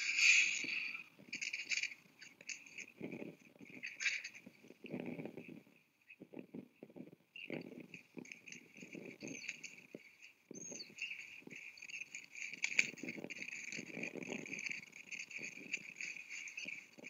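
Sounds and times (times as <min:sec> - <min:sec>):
vultures scuffling: 0:07.9 - 0:17.0.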